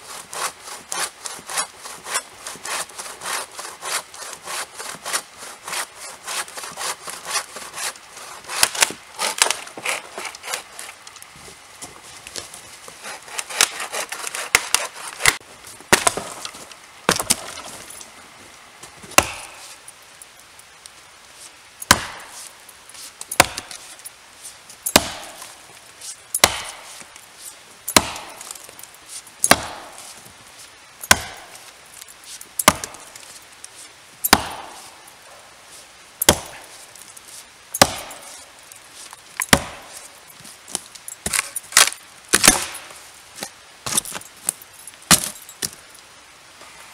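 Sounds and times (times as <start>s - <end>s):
bow saw cutting a log: 0.0s - 11.0s, 13.0s - 15.4s
axe chopping into a log: 13.5s - 16.4s, 17.1s - 17.6s, 19.1s - 19.7s, 21.8s - 22.4s, 23.4s - 23.8s, 24.9s - 25.5s, 26.4s - 26.9s, 27.9s - 28.6s, 29.4s - 30.0s, 31.0s - 31.5s, 32.6s - 33.1s, 34.2s - 34.9s, 36.2s - 36.7s, 37.8s - 38.4s, 39.4s - 40.0s, 41.2s - 42.9s, 45.1s - 45.4s.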